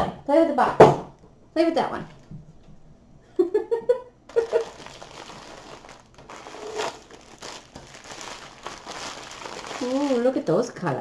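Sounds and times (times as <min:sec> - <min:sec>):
plastic bag crinkling: 0:04.3 - 0:10.6.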